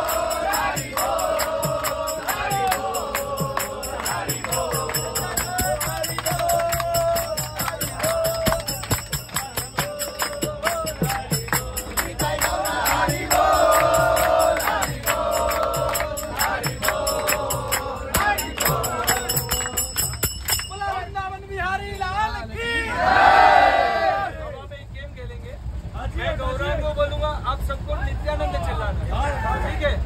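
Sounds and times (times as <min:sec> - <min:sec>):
hand-clapping: 0:00.0 - 0:20.8
men singing a chant: 0:00.0 - 0:21.0
hand drum beat: 0:00.9 - 0:20.7.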